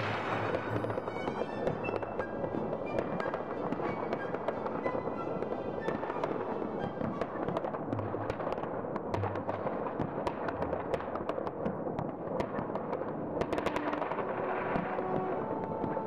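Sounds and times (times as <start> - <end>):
sharp firecracker cracks: 0.0 - 1.3, 7.6 - 16.0
distant fireworks and firecrackers: 0.0 - 16.0.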